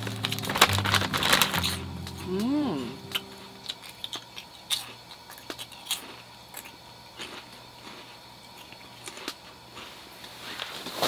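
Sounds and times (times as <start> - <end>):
corn snacks being chewed: 0.0 - 2.3, 3.0 - 11.0
crisp crunches: 0.0 - 2.4.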